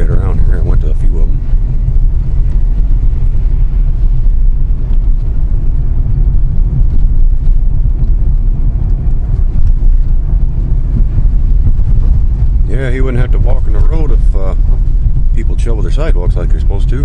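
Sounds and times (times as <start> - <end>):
car engine rumble: 0.0 - 17.0.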